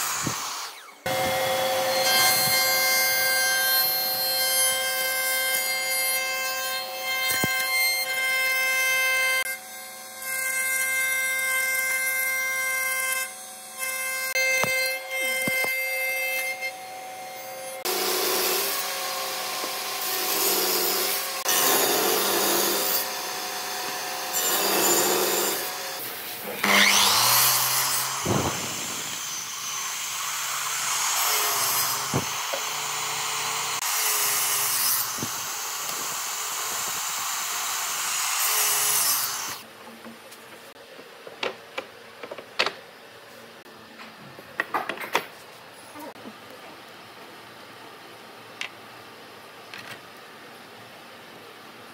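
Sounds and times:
planer and saw cutting wood: 0:00.0 - 0:39.7.

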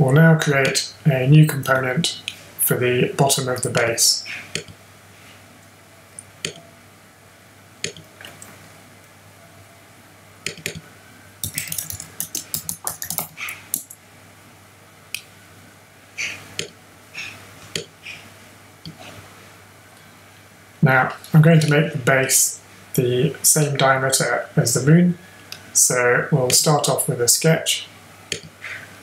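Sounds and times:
keyboard typing: 0:10.5 - 0:10.8, 0:11.4 - 0:14.0.

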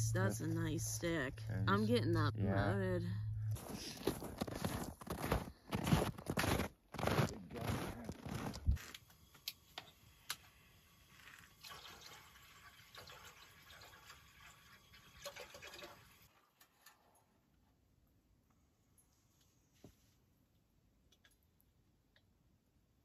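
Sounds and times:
footsteps on snow: 0:03.6 - 0:08.8
water pouring into metal pot: 0:11.2 - 0:17.2.

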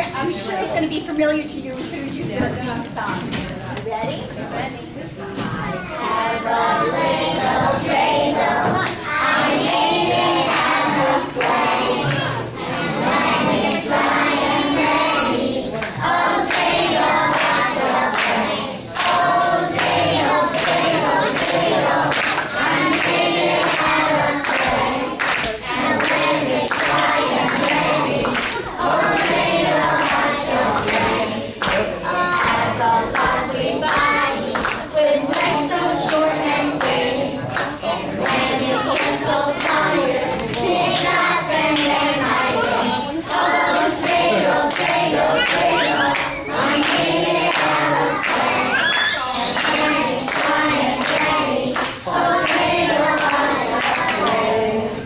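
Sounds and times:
young children singing: 0:05.4 - 0:55.0
hand clapping: 0:17.3 - 0:29.4, 0:30.0 - 0:41.2, 0:44.0 - 0:54.4.

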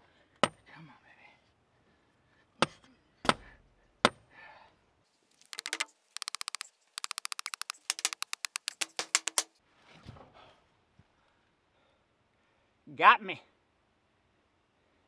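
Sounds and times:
hammer striking metal rod: 0:05.5 - 0:09.5
light hammer taps: 0:05.5 - 0:09.5.

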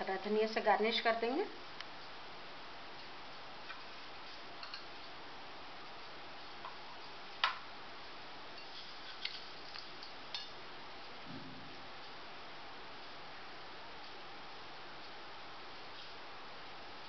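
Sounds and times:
faint room hiss: 0:00.0 - 0:17.0
soft low bump: 0:11.2 - 0:11.8.

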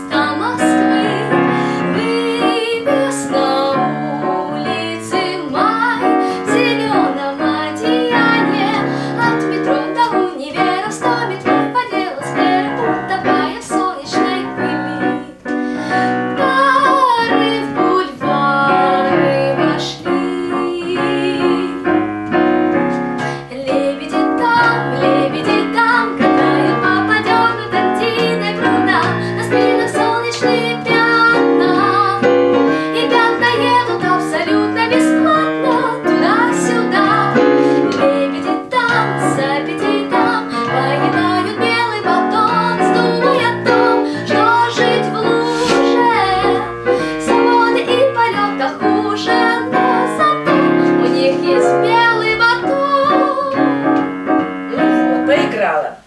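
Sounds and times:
woman singing: 0:00.0 - 0:22.0, 0:23.2 - 0:54.1, 0:54.7 - 0:56.0
digital piano: 0:00.0 - 0:56.0.

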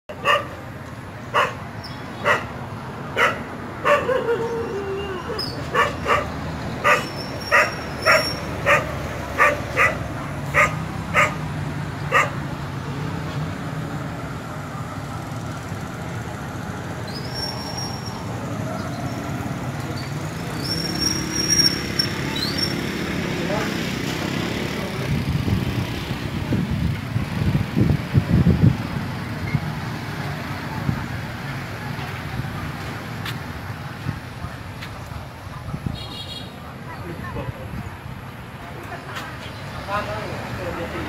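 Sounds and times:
dogs barking: 0:00.1 - 0:00.7, 0:01.3 - 0:04.8, 0:05.4 - 0:12.5.

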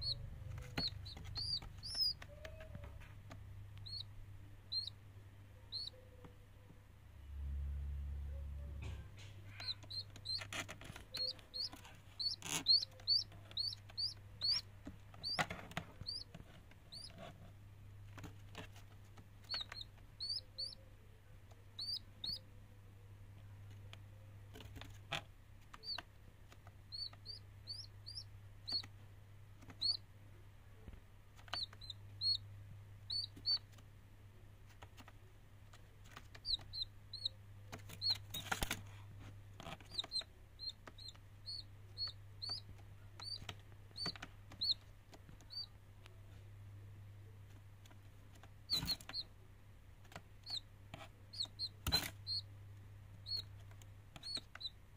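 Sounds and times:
steady low hum: 0:00.0 - 0:05.9, 0:06.7 - 0:18.2
chick peeping: 0:00.0 - 0:06.8, 0:08.2 - 0:22.8, 0:23.4 - 0:29.0, 0:29.6 - 0:30.1, 0:30.8 - 0:33.8, 0:34.7 - 0:46.4, 0:47.2 - 0:49.4, 0:50.0 - 0:52.5, 0:53.1 - 0:54.8.

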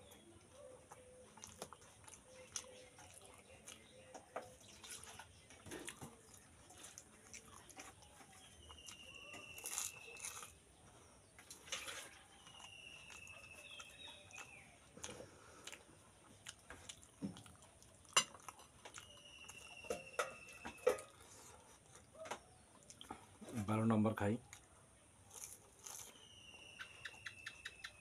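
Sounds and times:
crunchy shells crackling: 0:01.4 - 0:10.7, 0:25.2 - 0:27.7
bird whistled call: 0:26.1 - 0:28.0.

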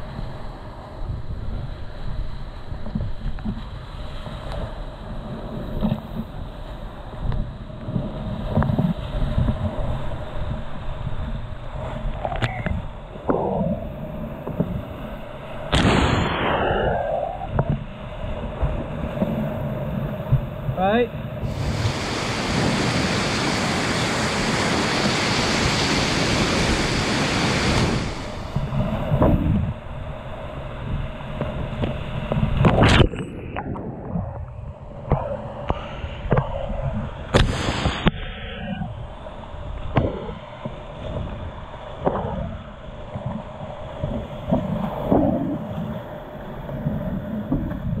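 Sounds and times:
paddle and wave splashes: 0:00.0 - 0:48.0
wind rumble on microphone: 0:00.0 - 0:48.0
white water rushing: 0:20.8 - 0:33.3.

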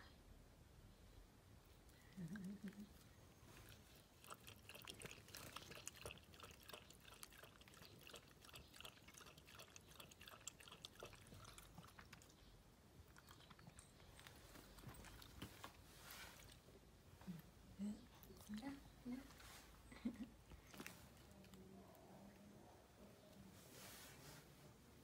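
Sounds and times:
dog lapping water: 0:03.9 - 0:12.3.

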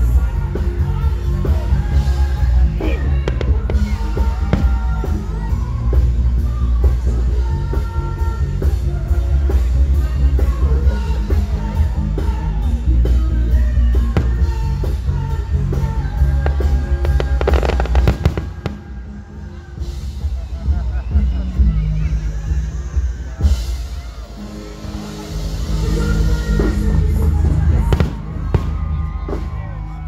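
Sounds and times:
music with heavy bass beat: 0:00.0 - 0:19.2
drums: 0:00.0 - 0:30.0
person singing: 0:00.0 - 0:30.0.

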